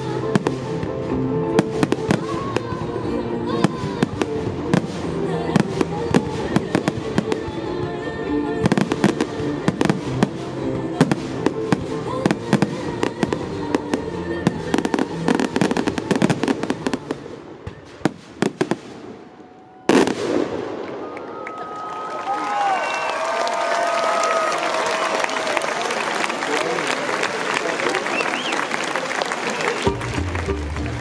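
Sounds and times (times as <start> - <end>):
fireworks bangs and crackling: 0.0 - 8.0, 8.6 - 21.2
music: 0.0 - 18.0, 29.8 - 31.0
crowd cheering and whistling: 20.8 - 31.0.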